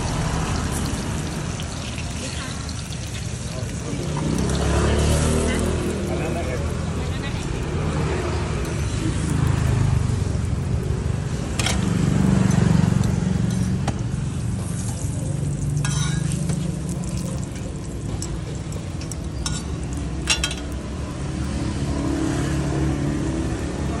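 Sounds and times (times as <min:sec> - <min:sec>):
pancake sizzling in oil: 0:00.0 - 0:23.0
metal tongs clicking on griddle: 0:15.8 - 0:16.2.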